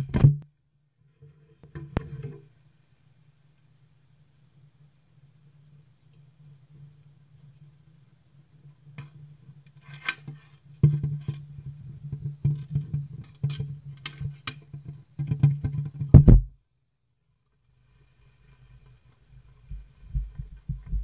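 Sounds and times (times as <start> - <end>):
loud thump: 16.1 - 16.5.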